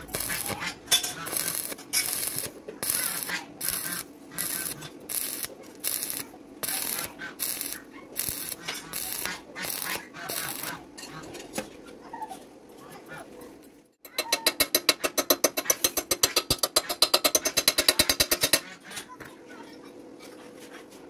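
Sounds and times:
welding arc crackling: 0:00.0 - 0:10.9.

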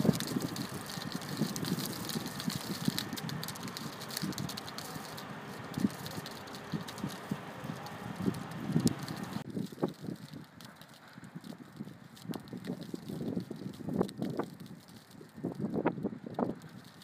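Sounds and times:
faint fine crackles: 0:00.0 - 0:17.0
wind buffeting microphone: 0:00.0 - 0:17.0.

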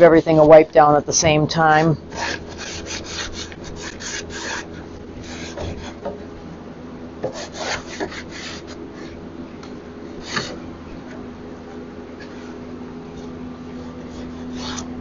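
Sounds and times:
sponge scrubbing wood: 0:00.0 - 0:06.1, 0:07.3 - 0:09.1
steady low hum: 0:00.0 - 0:15.0.

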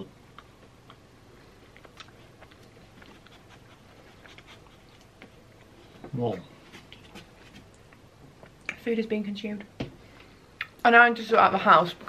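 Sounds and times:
faint chewing: 0:00.0 - 0:06.1, 0:06.7 - 0:08.8.

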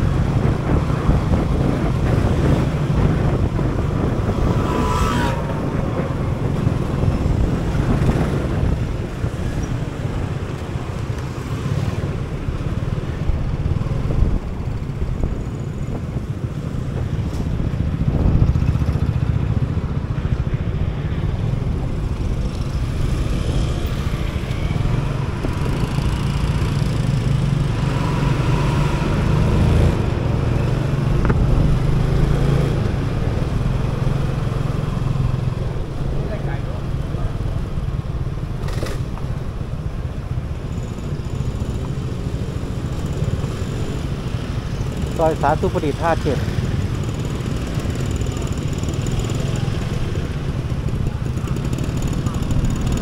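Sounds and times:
road vehicles passing: 0:00.0 - 0:53.0
motor scooter engine running: 0:44.8 - 0:53.0.

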